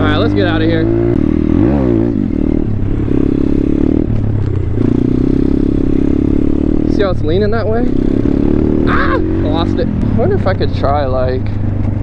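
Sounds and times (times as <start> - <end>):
motorbike engine revving: 0.0 - 12.0.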